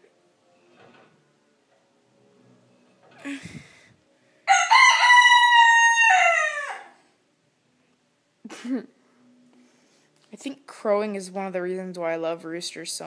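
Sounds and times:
rooster crowing: 4.5s - 7.0s.

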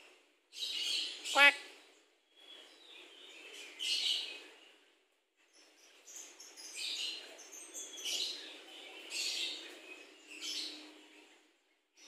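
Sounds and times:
bird calling: 1.3s - 1.7s.

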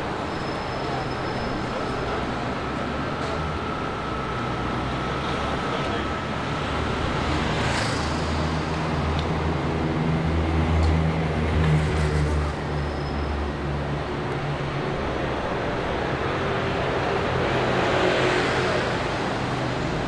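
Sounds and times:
car engines idling in traffic: 0.0s - 10.3s.

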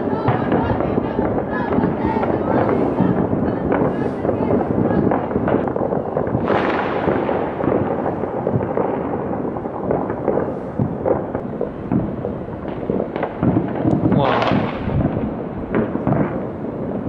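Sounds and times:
fireworks and firecrackers banging: 0.0s - 17.0s.

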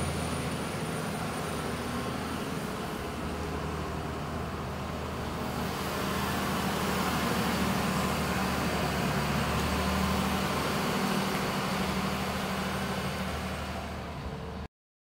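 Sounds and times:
wheel loader diesel engine: 0.0s - 14.7s.

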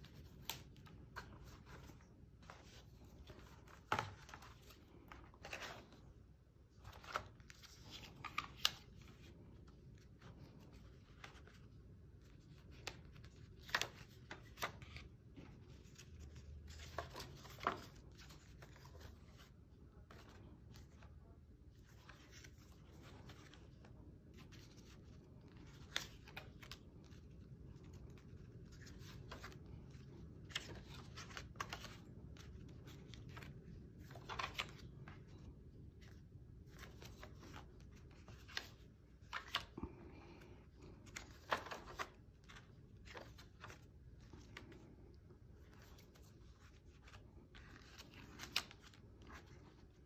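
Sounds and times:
paper pages rustling: 0.0s - 6.1s, 6.7s - 50.0s
low steady background hum: 0.0s - 50.0s.

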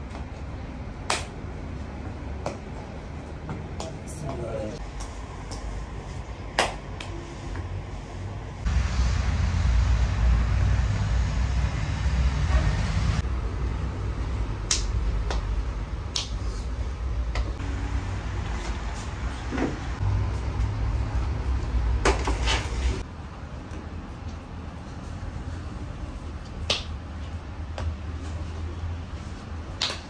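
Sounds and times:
low rumble: 8.5s - 16.1s.

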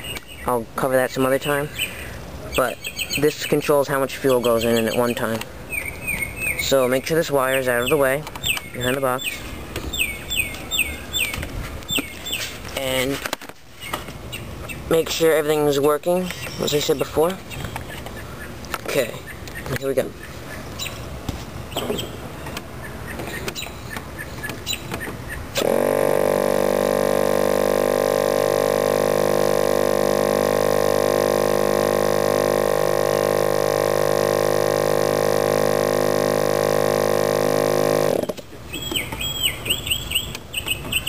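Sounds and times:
electric starter spinning engine: 25.5s - 38.4s.

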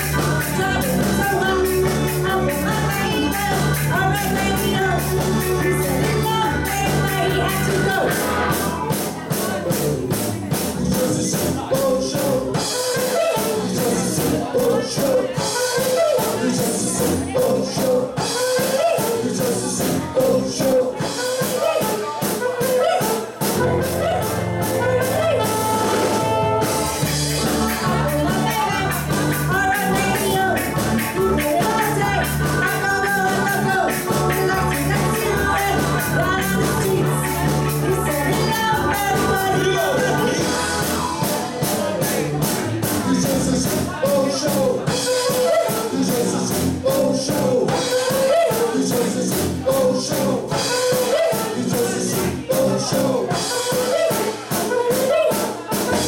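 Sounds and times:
woman singing: 0.0s - 8.3s, 10.9s - 42.0s, 43.0s - 56.0s
deep bass: 0.0s - 12.7s, 13.6s - 15.6s, 16.4s - 18.4s, 23.5s - 45.1s, 45.8s - 48.0s, 48.7s - 50.8s, 51.6s - 53.5s
ska band playing live: 0.0s - 56.0s.

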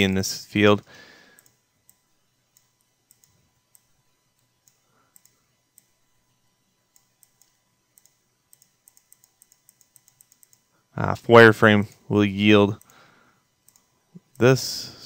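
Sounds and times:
computer mouse clicks: 1.4s - 6.0s, 6.9s - 10.7s, 13.6s - 14.4s.

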